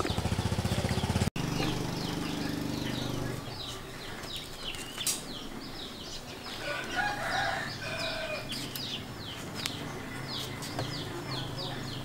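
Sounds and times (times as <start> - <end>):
small birds chirping: 0.0 - 12.0
rooster crowing: 6.6 - 8.6.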